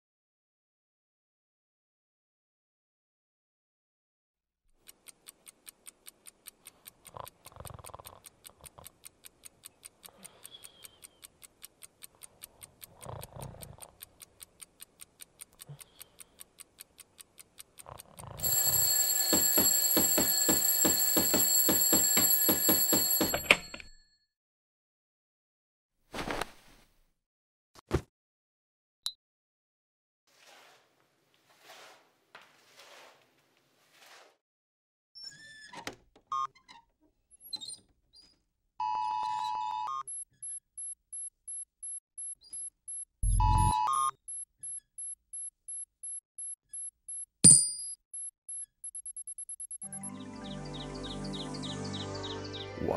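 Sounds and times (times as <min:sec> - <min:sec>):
clock ticking: 0:04.7 - 0:23.6, 0:40.0 - 0:50.0
alarm clock bell ringing: 0:18.4 - 0:24.0
short electronic beeps: 0:39.7 - 0:50.1
short electronic bleep: 0:40.1 - 0:50.0.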